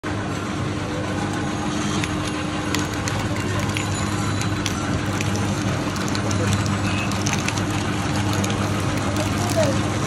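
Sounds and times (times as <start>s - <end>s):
street noise: 0.0s - 10.0s
motor humming: 1.0s - 10.0s.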